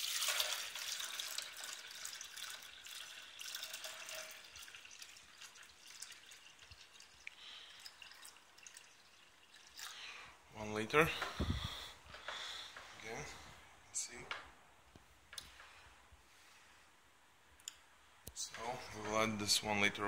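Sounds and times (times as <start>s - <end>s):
water pouring into a plastic jug: 0.0s - 10.2s.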